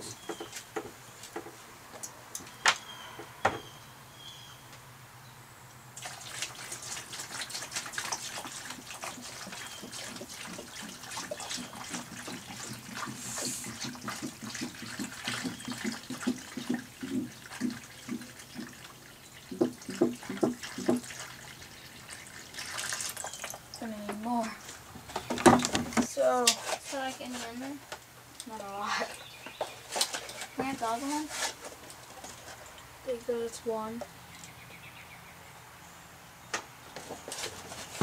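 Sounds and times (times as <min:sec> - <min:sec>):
water splashing into tub: 0:06.0 - 0:23.9.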